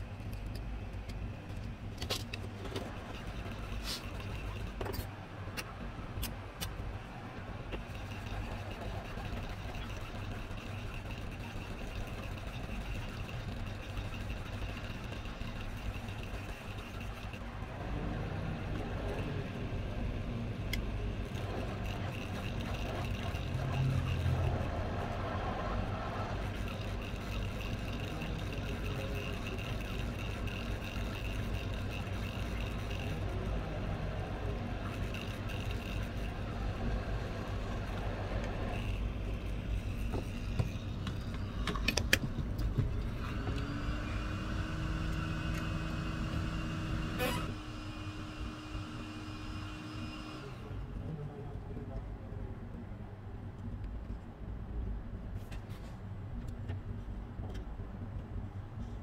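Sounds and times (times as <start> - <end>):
hot air blower rushing hum: 7.9 - 50.9.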